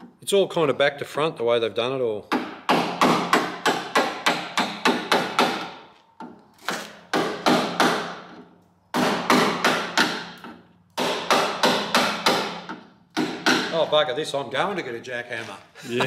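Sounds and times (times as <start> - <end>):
hammer striking chisel on metal: 2.3 - 6.4, 7.1 - 13.8.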